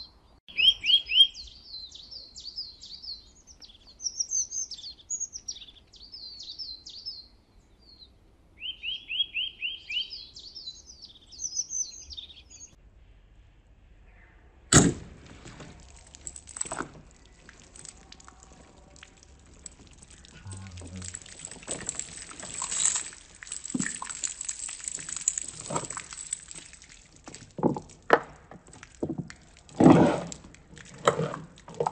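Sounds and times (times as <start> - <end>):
water sloshing and pouring: 14.8 - 31.9.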